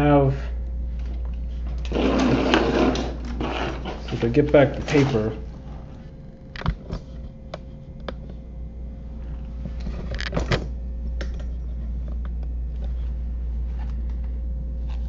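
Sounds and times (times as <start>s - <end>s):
steady low hum: 0.0s - 15.0s
paper rustling: 1.6s - 5.5s.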